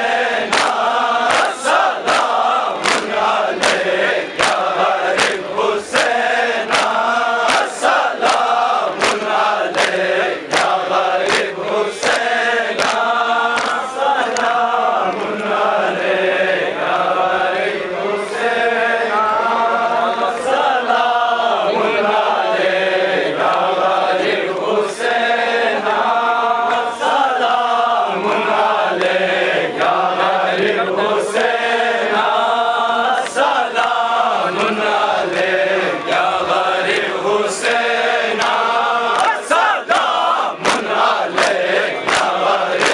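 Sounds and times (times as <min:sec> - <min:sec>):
men chanting in unison: 0:00.0 - 0:42.9.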